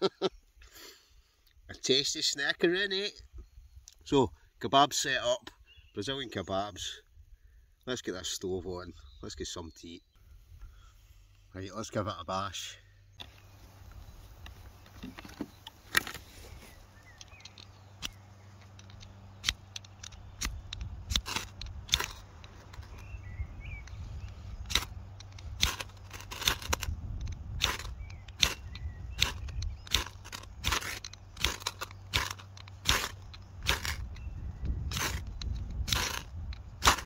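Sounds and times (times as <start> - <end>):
fire crackling and popping: 23.9 - 34.2.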